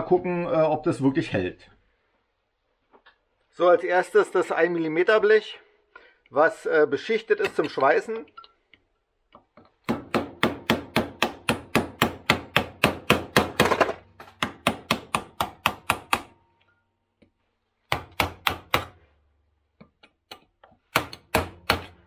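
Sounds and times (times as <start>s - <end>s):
hammer striking steel chisel: 7.4s - 8.5s, 9.3s - 17.3s, 17.9s - 19.0s, 19.8s - 22.0s.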